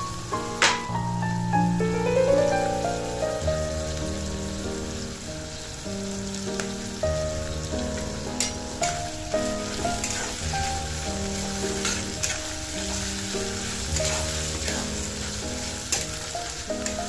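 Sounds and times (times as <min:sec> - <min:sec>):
background music with held notes: 0:00.0 - 0:17.0
onions sizzling in oil: 0:02.8 - 0:17.0
spatula scraping pan: 0:09.9 - 0:10.4, 0:11.4 - 0:13.0, 0:13.9 - 0:15.2.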